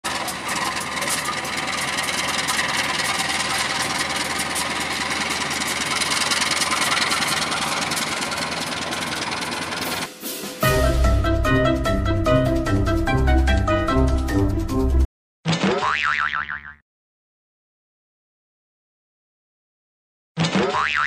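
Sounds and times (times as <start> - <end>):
rapid clatter of train coaches: 0.0 - 10.4
locomotive engine running: 0.0 - 15.0.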